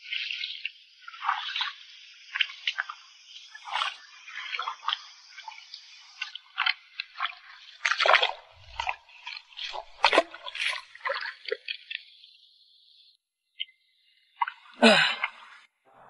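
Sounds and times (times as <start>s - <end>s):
water splashing and sloshing: 0.0s - 12.7s.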